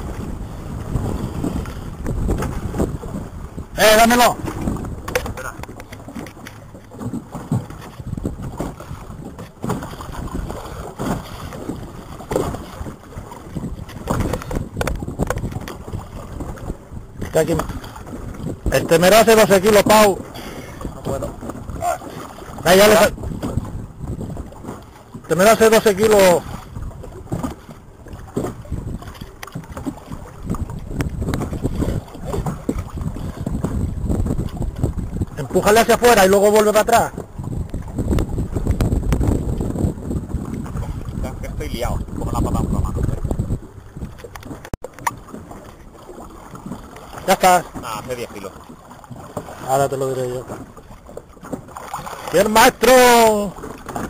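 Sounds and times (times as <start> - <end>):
water splashing and sloshing: 0.0 - 54.0
wind rumbling on microphone: 0.0 - 54.0.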